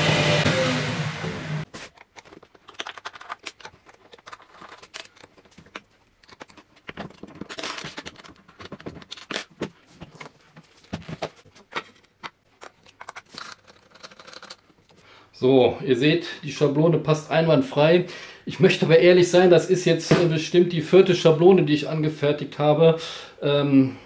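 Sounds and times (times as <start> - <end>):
milling machine cutting off: 0.0 - 1.6.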